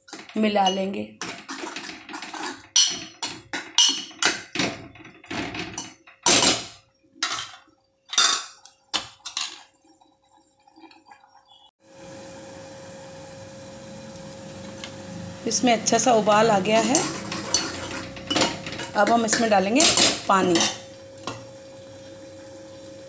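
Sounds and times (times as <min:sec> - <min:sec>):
spoon scraping metal pot: 0:00.0 - 0:04.6, 0:16.3 - 0:21.4.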